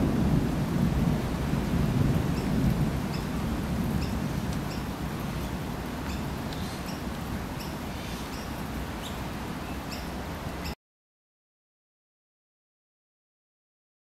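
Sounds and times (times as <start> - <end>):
thunder rumbling: 0.0 - 6.4
small bird chirping: 6.0 - 10.8.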